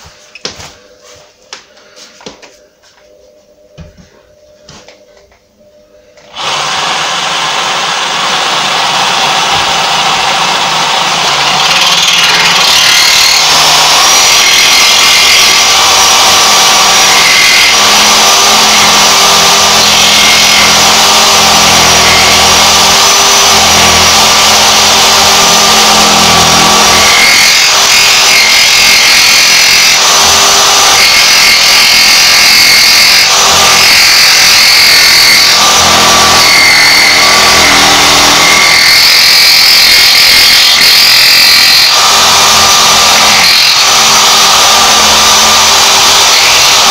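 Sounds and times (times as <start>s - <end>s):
jigsaw cutting wood: 6.3s - 46.9s.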